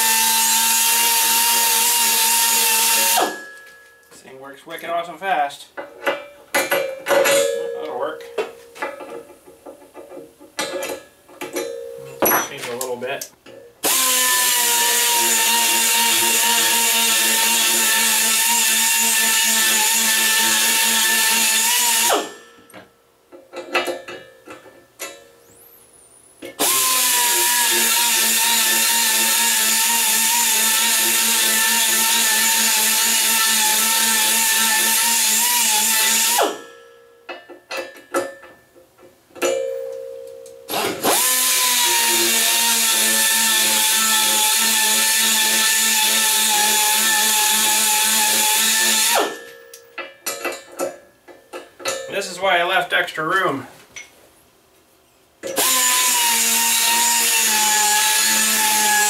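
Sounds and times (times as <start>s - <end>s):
power tool whining: 0.0s - 3.6s, 13.8s - 22.4s, 26.4s - 36.7s, 40.7s - 49.5s, 55.4s - 59.0s.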